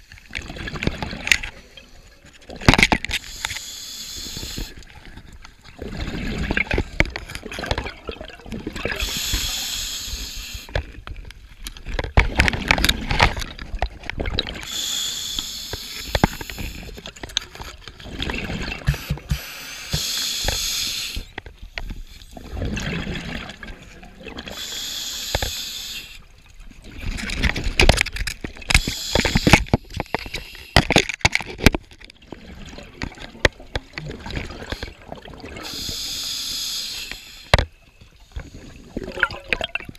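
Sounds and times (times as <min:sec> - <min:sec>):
hissing regulator inhale: 0:03.2 - 0:04.8, 0:09.0 - 0:10.7, 0:14.6 - 0:17.0, 0:18.9 - 0:22.4, 0:24.5 - 0:26.2, 0:28.7 - 0:30.8, 0:35.6 - 0:37.6
bubbling exhaled air: 0:05.8 - 0:10.7, 0:38.4 - 0:39.9.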